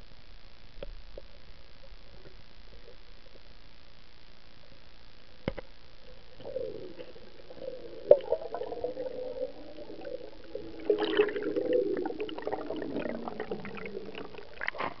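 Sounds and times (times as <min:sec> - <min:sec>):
underwater clicks: 0:05.4 - 0:05.7.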